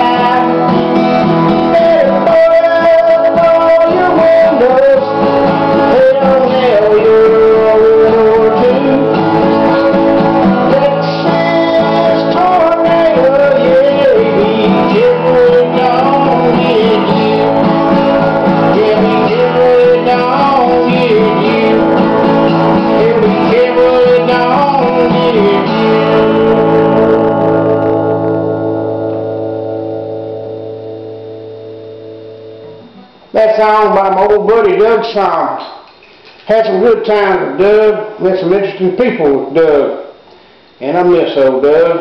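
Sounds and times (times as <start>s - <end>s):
acoustic guitar strumming: 0.0s - 35.5s.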